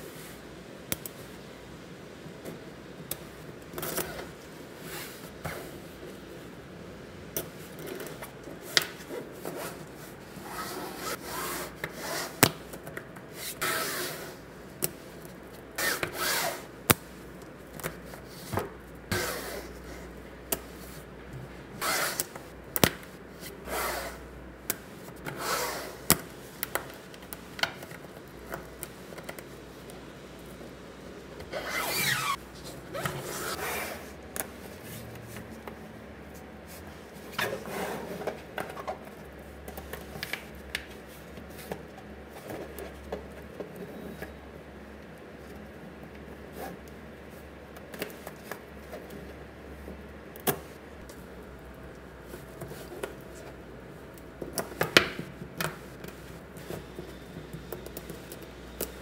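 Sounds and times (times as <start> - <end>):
balls rattling and rubbing on table: 2.2 - 30.6.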